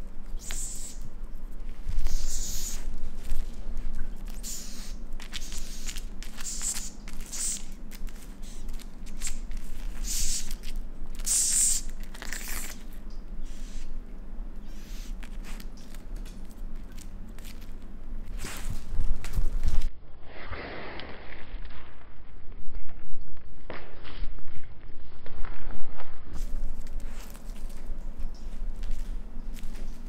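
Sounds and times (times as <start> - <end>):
raccoon chewing: 0.0 - 14.0, 14.6 - 19.9, 26.4 - 30.0.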